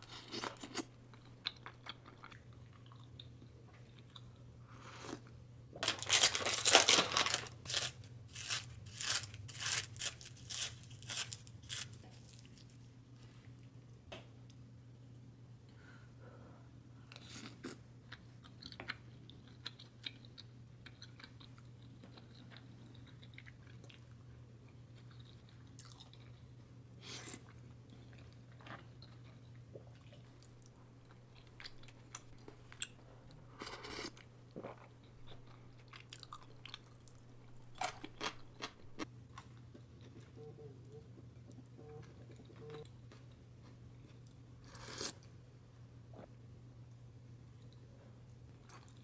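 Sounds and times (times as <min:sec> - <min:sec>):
person chewing: 0:00.0 - 0:04.4, 0:17.1 - 0:42.9
low steady hum: 0:00.0 - 0:49.0.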